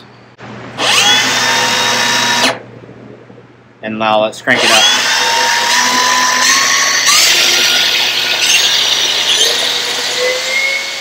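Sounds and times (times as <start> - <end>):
track saw motor whine: 0.8 - 2.6, 4.6 - 11.0.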